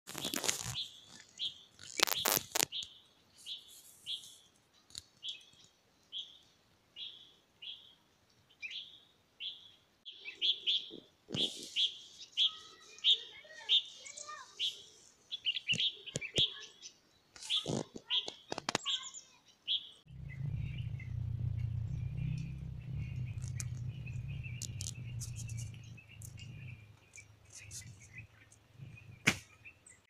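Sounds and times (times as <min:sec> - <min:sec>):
small bird chirping: 0:00.2 - 0:30.0
bird twittering: 0:18.9 - 0:30.0.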